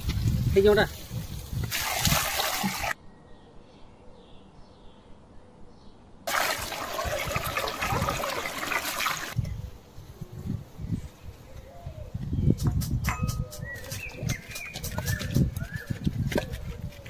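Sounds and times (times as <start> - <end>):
water pouring into metal basin: 1.7 - 3.0, 6.3 - 9.4
soft bird chirps: 11.0 - 16.7.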